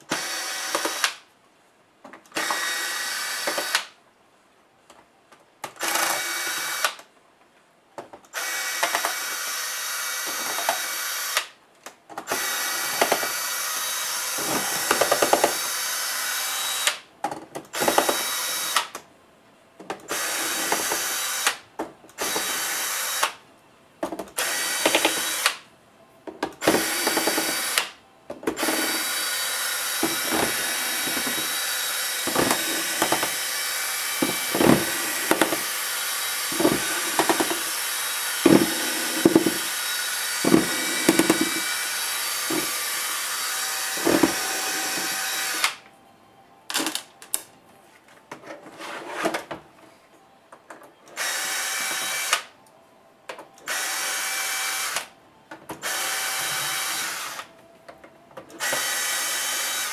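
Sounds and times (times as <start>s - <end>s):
cordless electric screwdriver running: 0.1s - 1.2s, 2.4s - 3.8s, 5.8s - 7.0s, 8.4s - 11.5s, 12.3s - 17.0s, 17.8s - 18.9s, 22.2s - 23.4s, 24.4s - 25.6s, 26.6s - 27.9s, 28.6s - 45.8s, 51.2s - 52.5s, 53.7s - 55.1s, 55.8s - 57.5s, 58.6s - 59.9s.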